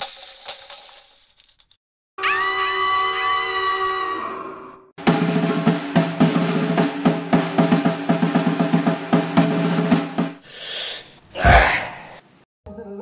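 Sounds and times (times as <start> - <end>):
snare drum roll: 5.0 - 10.4.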